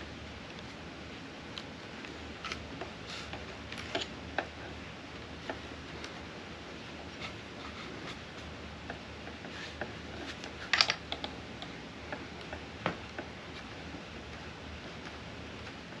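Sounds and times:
small parts clicking and tapping: 8.9s - 13.3s.

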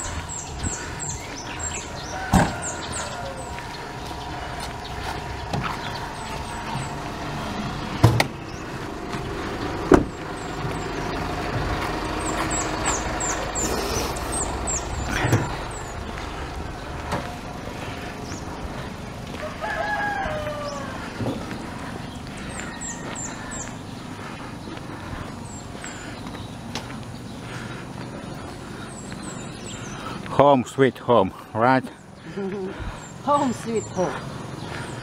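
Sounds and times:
small birds chirping: 0.0s - 35.0s
rooster crowing: 1.6s - 4.2s, 19.3s - 21.5s, 22.5s - 23.7s.

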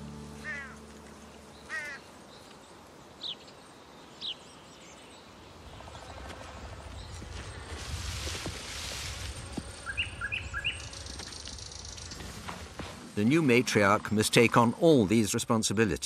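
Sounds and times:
faint outdoor ambience: 0.0s - 16.0s
birds calling: 0.4s - 7.7s, 9.4s - 14.7s.

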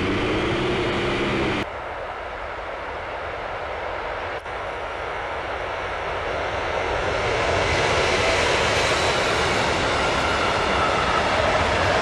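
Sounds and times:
freight train passing: 0.0s - 12.0s.

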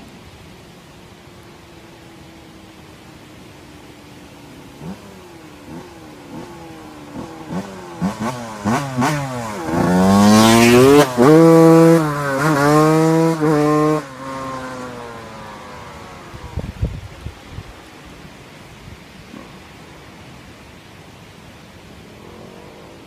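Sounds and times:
motocross bike accelerating: 1.4s - 20.6s.

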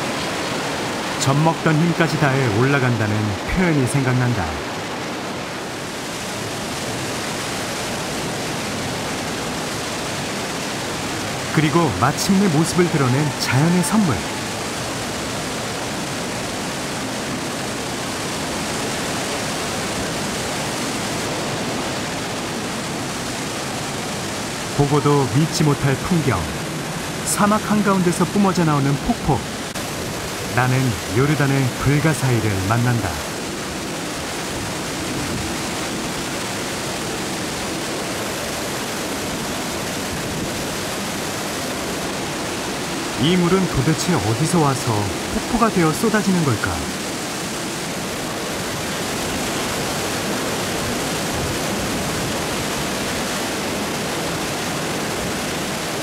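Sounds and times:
waterfall rushing: 0.0s - 56.0s
waterfall pouring into pool: 8.4s - 20.8s.

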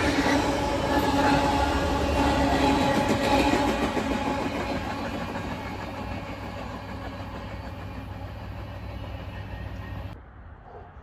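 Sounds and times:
freight train rumbling on rails: 0.0s - 10.8s.

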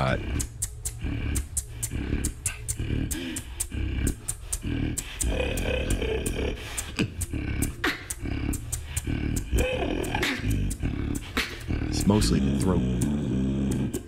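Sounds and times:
beatboxed hi-hat clicks: 0.0s - 14.0s
beatboxing bass: 0.0s - 14.0s.

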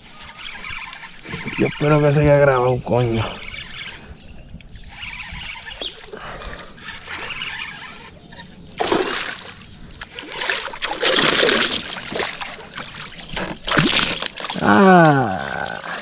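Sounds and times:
fish splashing at water surface: 8.8s - 9.6s, 10.2s - 14.9s.

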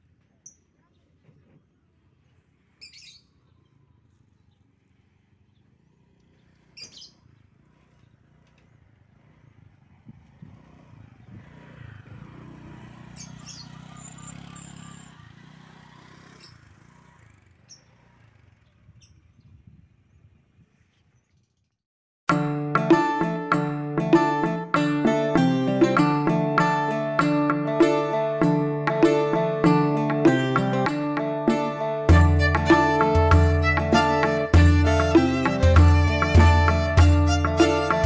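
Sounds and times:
bird chirps: 0.3s - 1.1s, 2.8s - 4.7s, 5.4s - 8.8s, 13.1s - 15.4s
engine passing: 2.0s - 19.0s, 24.8s - 38.0s.

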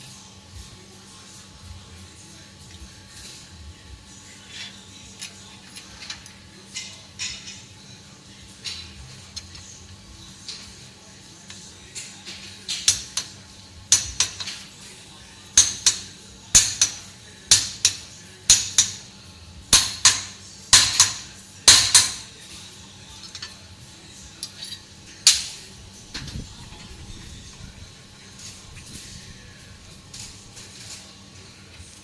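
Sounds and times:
hammer striking metal: 19.8s - 22.2s.

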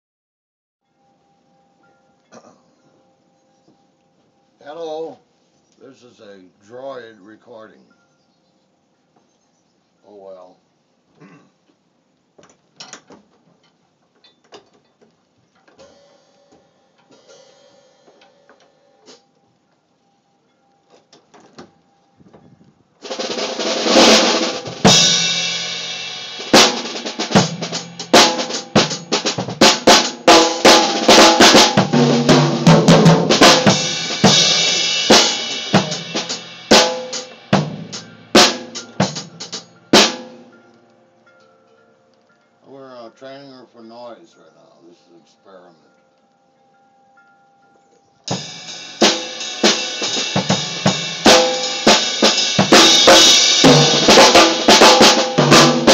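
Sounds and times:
drum kit playing loudly: 15.8s - 19.2s, 23.0s - 40.6s, 48.3s - 55.9s.

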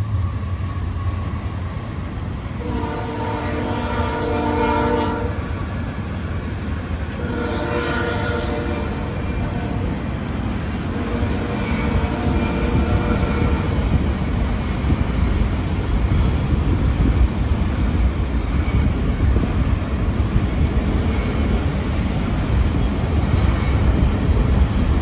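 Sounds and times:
freight train rumbling past: 0.0s - 25.0s
train horn: 2.6s - 5.5s, 7.1s - 10.1s, 10.8s - 13.9s.

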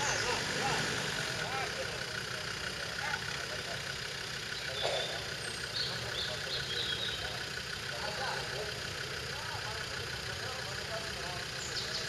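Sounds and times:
engine running at low revs: 0.0s - 12.0s.

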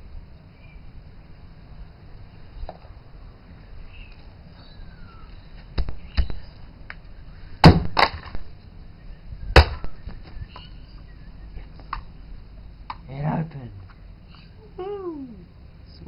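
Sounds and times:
sledgehammer smashing hard drive: 7.6s - 8.5s, 9.6s - 10.0s.

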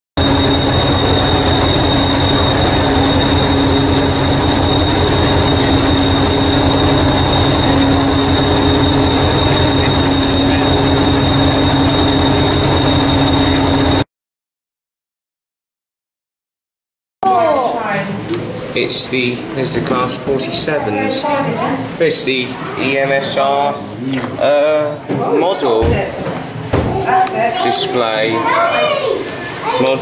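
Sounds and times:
train engine idling throb: 0.2s - 14.0s
high whine: 0.2s - 14.1s.

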